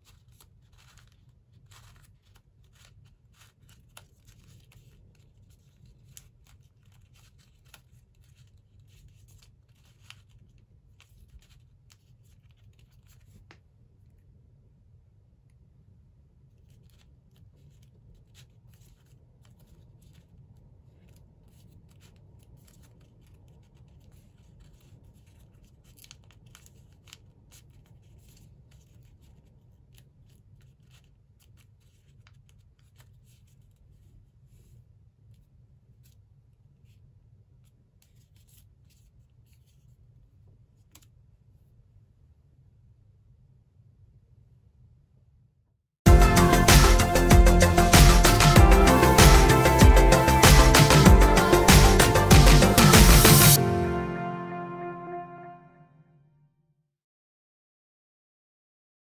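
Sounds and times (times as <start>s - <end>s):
paper crackling and rustling: 0.0s - 13.8s, 16.5s - 34.8s.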